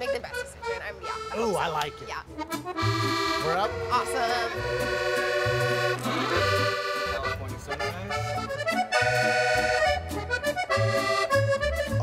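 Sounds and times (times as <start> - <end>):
accordion playing chords: 0.0 - 12.0
low bass line: 2.7 - 12.0.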